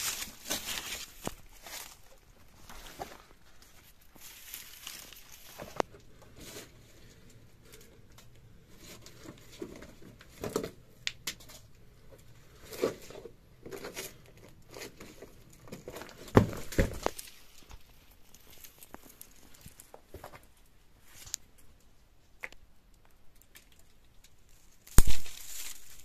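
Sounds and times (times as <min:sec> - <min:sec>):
footsteps crunching on soil and brush: 0:00.0 - 0:05.9, 0:25.0 - 0:26.0.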